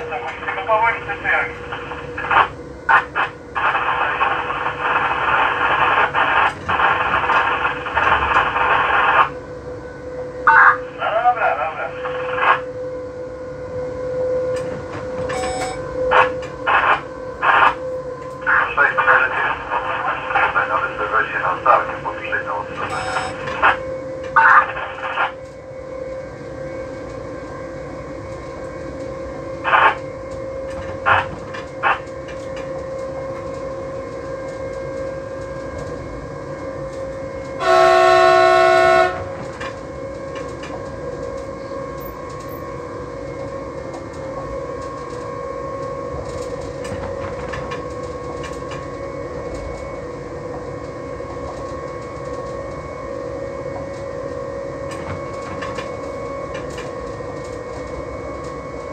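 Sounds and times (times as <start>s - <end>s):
electric train humming: 0.0s - 58.9s
train horn blast: 37.5s - 39.8s.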